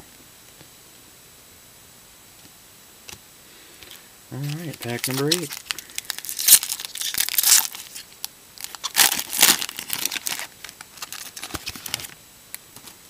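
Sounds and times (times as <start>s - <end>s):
foil wrapper tearing and crinkling: 4.4s - 12.2s.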